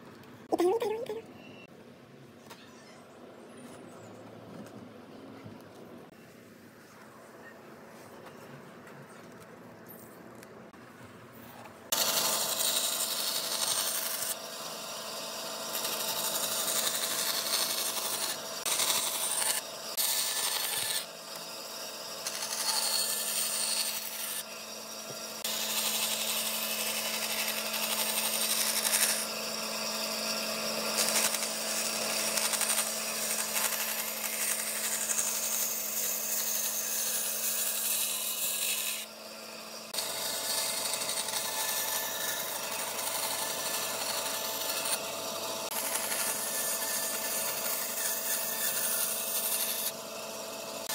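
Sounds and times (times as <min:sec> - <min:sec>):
bandsaw humming: 0:11.9 - 0:50.9.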